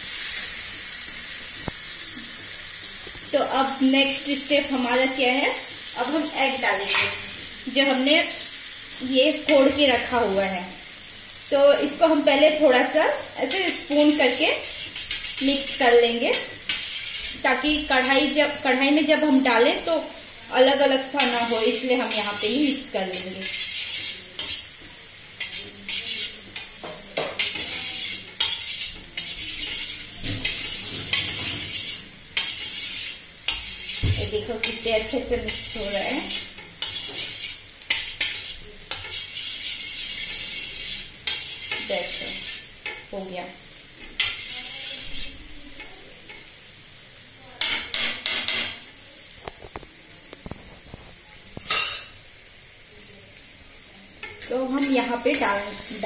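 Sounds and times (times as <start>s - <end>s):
spoon beating eggs in metal bowl: 14.1s - 17.4s, 23.0s - 24.7s, 25.4s - 34.0s, 34.6s - 43.1s, 44.1s - 45.3s.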